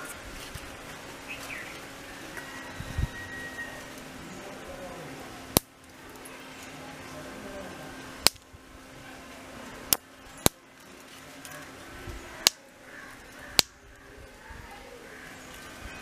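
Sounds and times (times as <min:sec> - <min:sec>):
seed pods snapping open: 0:08.2 - 0:08.5.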